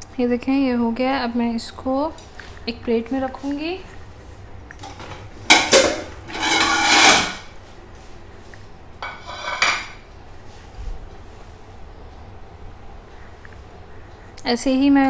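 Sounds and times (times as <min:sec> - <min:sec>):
plates knocking on countertop: 0:09.0 - 0:10.0.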